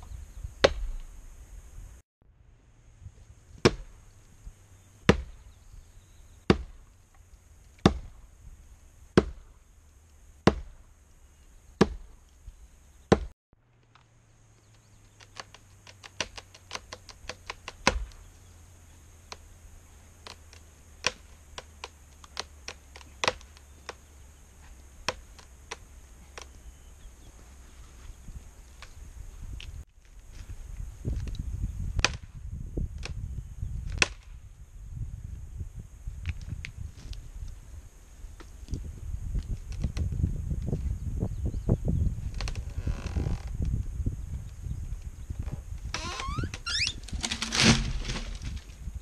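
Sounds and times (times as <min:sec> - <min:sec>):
axe chopping tree trunk: 0:00.6 - 0:01.0, 0:03.6 - 0:04.0, 0:05.1 - 0:05.4, 0:06.5 - 0:06.9, 0:07.8 - 0:08.2, 0:09.2 - 0:09.6, 0:10.4 - 0:10.9, 0:11.8 - 0:12.2, 0:13.1 - 0:13.3, 0:15.1 - 0:18.3, 0:21.0 - 0:24.0, 0:25.0 - 0:26.6, 0:32.0 - 0:32.3, 0:33.9 - 0:34.3
wood cracking: 0:13.1 - 0:18.3, 0:19.3 - 0:26.6, 0:45.4 - 0:48.9.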